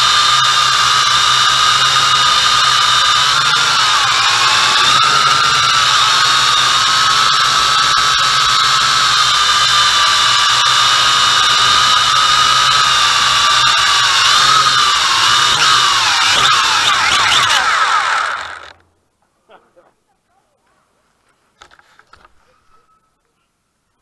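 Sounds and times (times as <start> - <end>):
quadcopter motors whining: 0.0 - 18.8.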